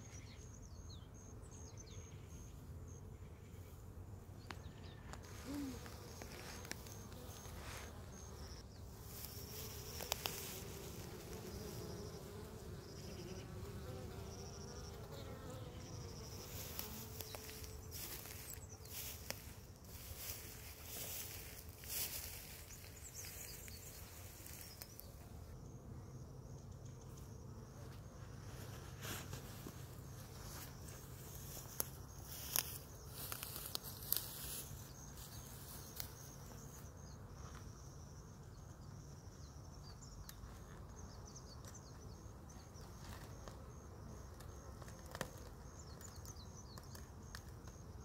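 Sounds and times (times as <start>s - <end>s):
hum of bees: 0.0s - 48.0s
grass and brush rustling: 5.2s - 13.2s, 15.8s - 25.3s, 28.0s - 37.7s
bee buzzing past: 5.2s - 25.5s.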